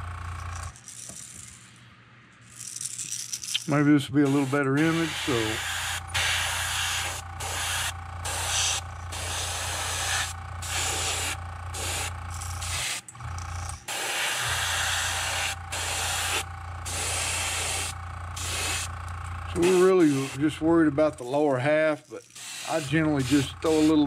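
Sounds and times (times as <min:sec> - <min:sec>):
steady low hum: 0:01.4 - 0:24.0
airbrush spraying hissing bursts: 0:04.2 - 0:13.1, 0:13.9 - 0:18.9, 0:19.6 - 0:20.5, 0:22.3 - 0:24.0.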